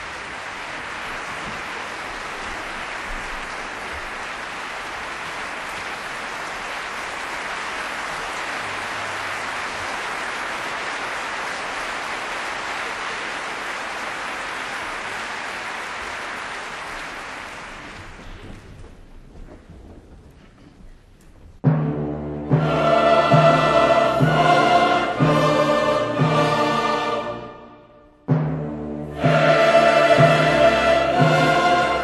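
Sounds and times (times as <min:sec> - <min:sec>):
crowd applauding: 0:00.0 - 0:18.8.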